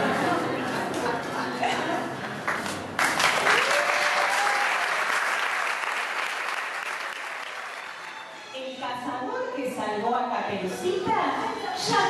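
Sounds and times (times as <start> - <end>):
audience clapping: 2.4 - 8.5.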